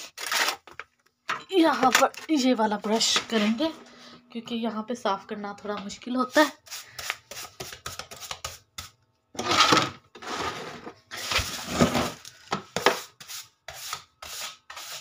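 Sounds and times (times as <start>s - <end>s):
broom sweeping tile floor: 2.8s - 3.6s, 6.3s - 15.0s.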